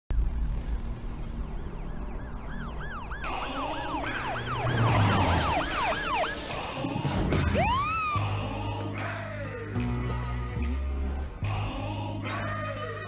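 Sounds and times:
low rumble: 0.1 - 5.5
police siren yelping: 1.5 - 8.4.

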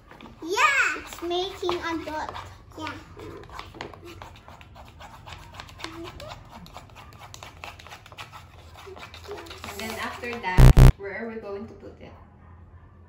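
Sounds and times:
plastic spoon scraping plastic bowl: 1.1 - 10.4
steady low hum: 10.6 - 10.9.

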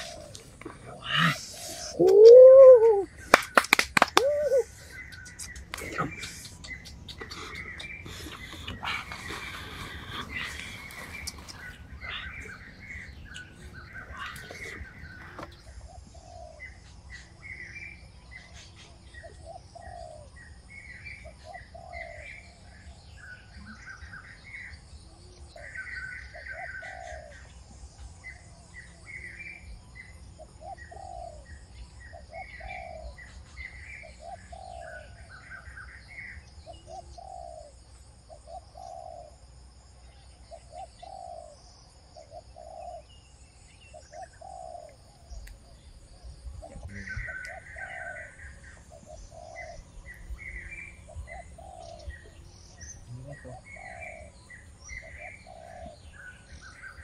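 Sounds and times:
high bird chirps: 0.0 - 18.0
low bird call: 0.0 - 39.4, 40.5 - 57.0.

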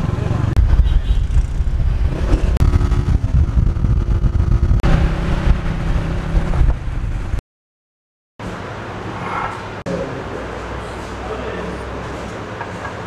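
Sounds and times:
motorcycle engine running: 0.0 - 7.4
wind buffeting microphone: 0.6 - 7.4.

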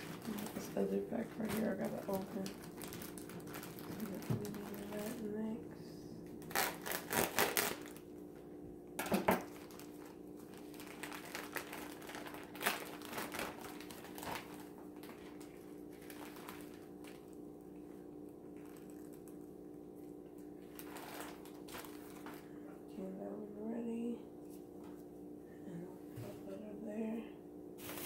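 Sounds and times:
plastic bag crinkling: 0.0 - 5.4, 6.4 - 8.1, 9.0 - 17.5, 18.5 - 19.5, 20.6 - 22.5
low hum: 0.0 - 7.1, 7.9 - 28.0.

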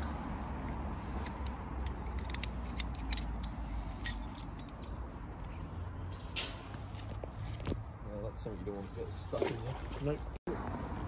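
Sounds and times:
metal tools clinking: 1.8 - 7.0.

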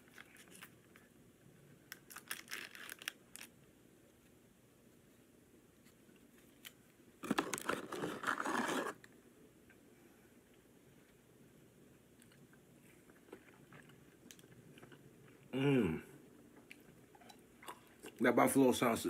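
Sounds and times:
packaging crinkling and tearing: 1.9 - 3.6, 6.6 - 9.1.

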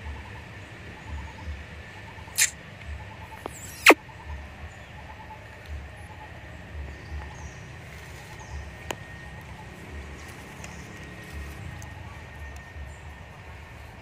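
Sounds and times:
faint chirps: 1.0 - 9.7
sharp click: 2.4 - 2.6, 3.4 - 4.0.

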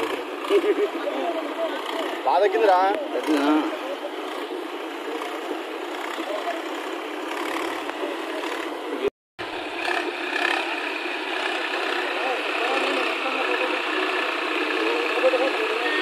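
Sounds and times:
faint voices: 0.0 - 9.1, 10.4 - 16.0
tractor engine running: 0.0 - 16.0
water washing around wheels: 0.0 - 16.0.

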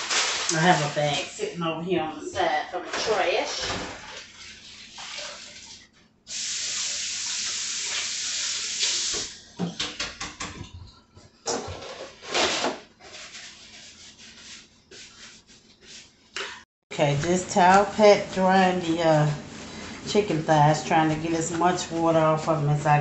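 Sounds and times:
paper towel rustling: 0.0 - 5.9, 11.7 - 16.3, 17.2 - 23.0.

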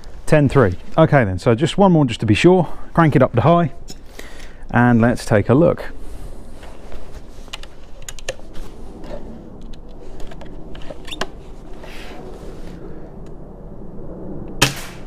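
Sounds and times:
handling clicks: 7.5 - 8.4
air rifle shot: 14.6 - 15.0.

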